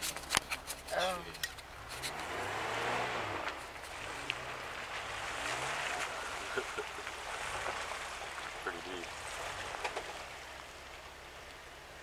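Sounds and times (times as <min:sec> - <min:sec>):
tyres splashing through puddle: 0:00.0 - 0:12.0
vehicle engine revving: 0:01.6 - 0:11.4.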